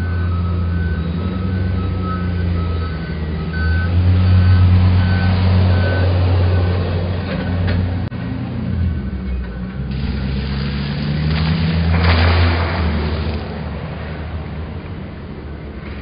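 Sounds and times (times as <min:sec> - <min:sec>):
vehicle reversing alarm beeping: 0:00.0 - 0:10.3
low engine drone: 0:00.0 - 0:16.0.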